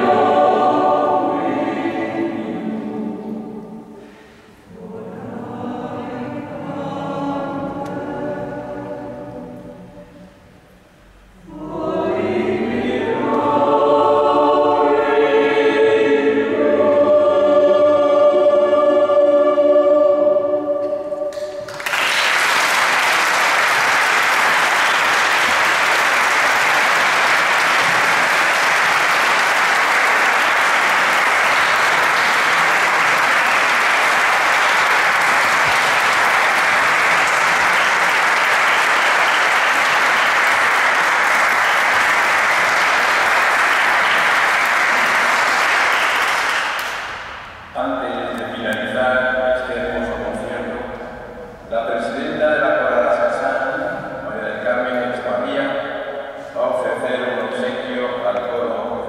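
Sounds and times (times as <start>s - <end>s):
choir singing final chord: 0.0s - 10.6s, 11.2s - 48.0s
audience applauding: 21.3s - 47.6s.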